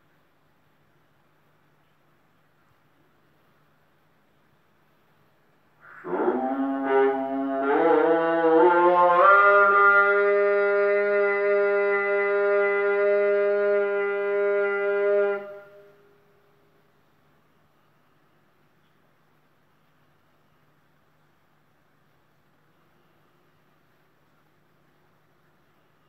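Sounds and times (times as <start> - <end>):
loud brass-like horn blast: 5.8 - 16.4.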